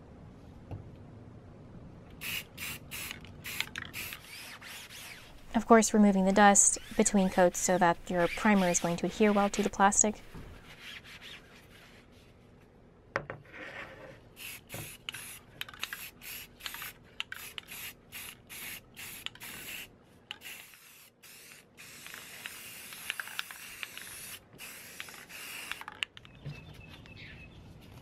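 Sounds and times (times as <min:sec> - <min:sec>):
aerosol spray can hissing: 0:02.2 - 0:05.4, 0:14.4 - 0:25.8
sandpaper rubbing: 0:04.0 - 0:05.5, 0:06.4 - 0:12.3.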